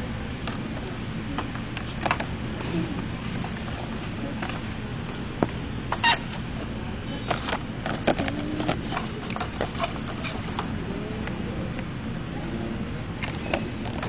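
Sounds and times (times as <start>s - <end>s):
steady background hum: 0.0s - 14.0s
plastic packaging clicks and crackles: 7.3s - 10.7s.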